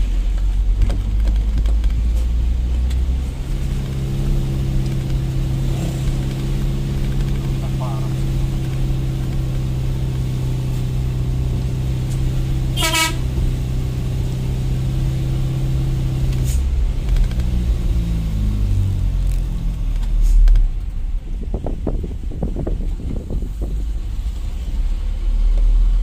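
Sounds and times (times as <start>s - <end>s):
truck engine running: 0.0s - 26.0s
short horn toot: 12.7s - 13.4s.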